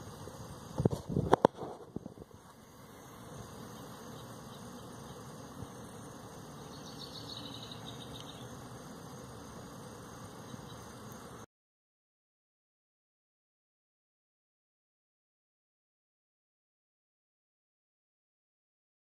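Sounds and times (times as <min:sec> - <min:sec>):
outdoor background hiss: 0:00.0 - 0:11.5.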